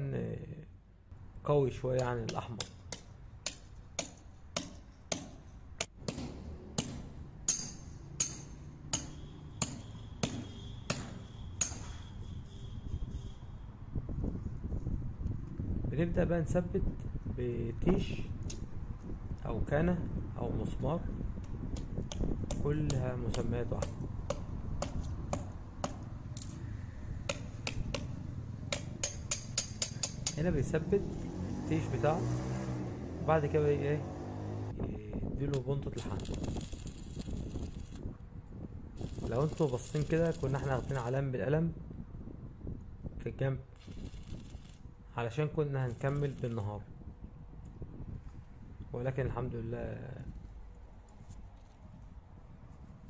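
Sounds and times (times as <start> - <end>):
hammer striking metal: 2.0 - 12.1, 27.3 - 30.5.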